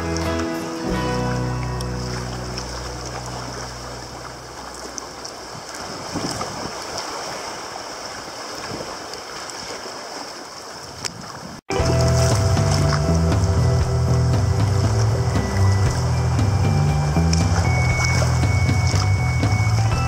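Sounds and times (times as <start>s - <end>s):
background music: 0.0s - 3.7s, 11.7s - 20.0s
sea water splashing around kayak: 0.0s - 20.0s.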